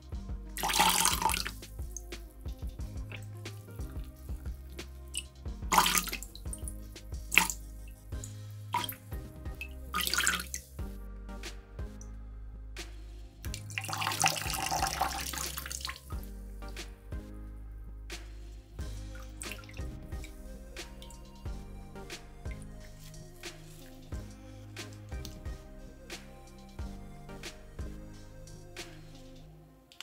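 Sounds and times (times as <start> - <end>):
soft background music: 0.0 - 30.0
water splashing: 0.6 - 1.6, 3.0 - 6.6, 7.3 - 7.6, 8.8 - 9.1, 9.9 - 10.6, 13.5 - 16.1, 19.4 - 19.8
wet sponge squelching: 0.6 - 2.1, 3.0 - 7.6, 8.7 - 10.6, 13.5 - 16.3.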